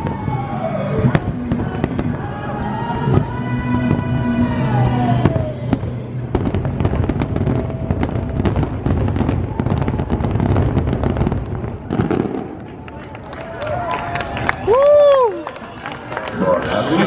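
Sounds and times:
fireworks bangs and crackling: 0:00.0 - 0:15.3.

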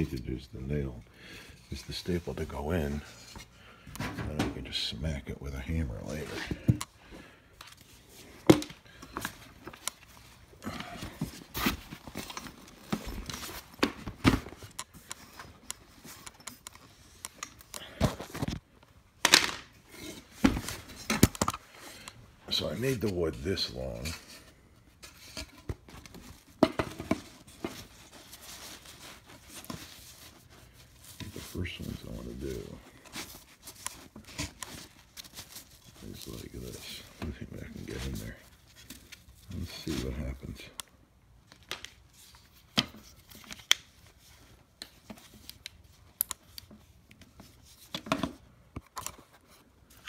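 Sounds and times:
fabric rustling and crinkling: 0:27.2 - 0:40.7.

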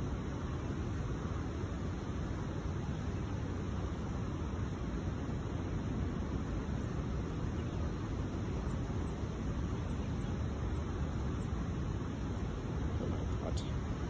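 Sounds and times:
distant road traffic rumble: 0:04.6 - 0:14.0.

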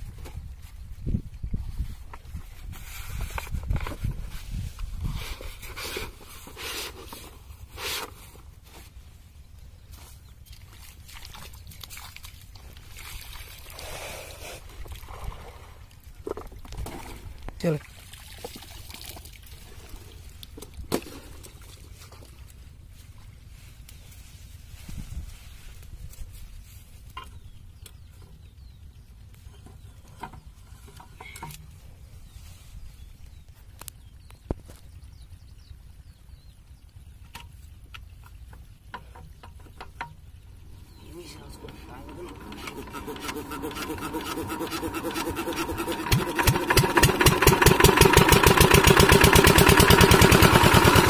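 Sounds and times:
diesel pump engine rumble: 0:40.6 - 0:51.0.

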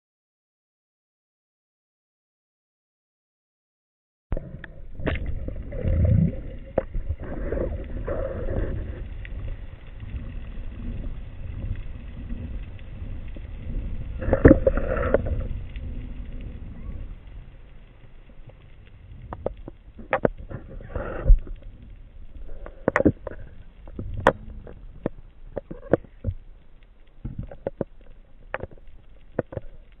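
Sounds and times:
underwater rumble of moving water: 0:04.3 - 0:30.0
water gurgling bursts: 0:04.4 - 0:17.6, 0:18.3 - 0:26.4.

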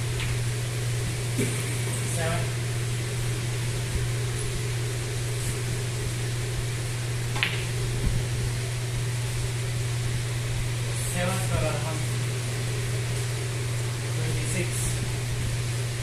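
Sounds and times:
low hum of fans: 0:00.0 - 0:16.0
cue striking snooker ball: 0:07.3 - 0:07.8.

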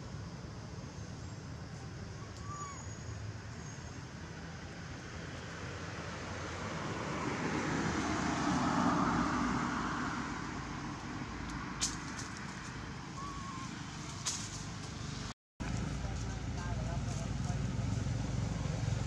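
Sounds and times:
motor vehicle passing by: 0:04.1 - 0:19.0.

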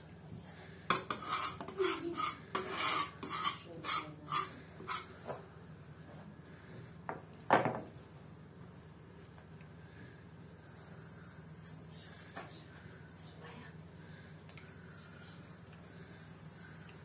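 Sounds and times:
knife scraping a pastry board: 0:00.9 - 0:05.2.

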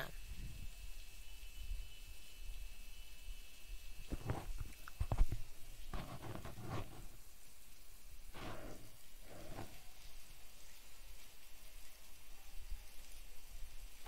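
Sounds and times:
soft rustling: 0:04.1 - 0:07.3.

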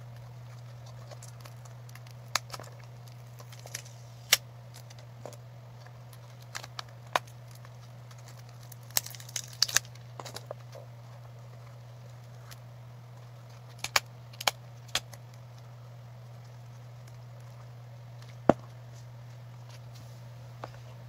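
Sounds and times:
steady low hum: 0:00.0 - 0:21.0
plastic clicks and crinkles: 0:00.1 - 0:12.6, 0:13.2 - 0:15.6.

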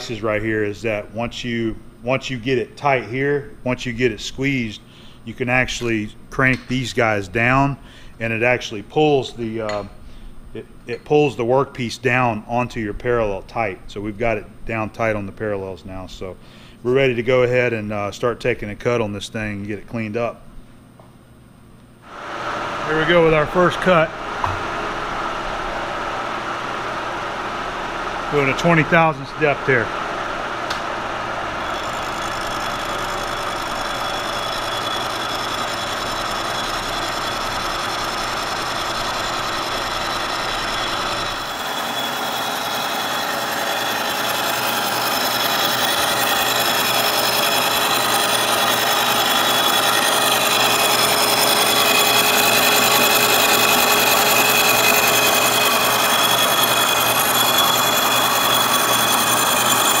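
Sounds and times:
milling machine cutting metal: 0:30.7 - 1:00.0.

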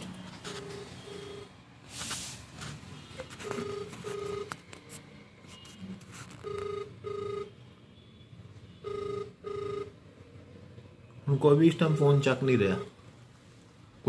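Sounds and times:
telephone ringback double beep: 0:00.5 - 0:01.5, 0:03.4 - 0:04.5, 0:06.4 - 0:07.6, 0:08.8 - 0:10.0, 0:11.9 - 0:13.0.

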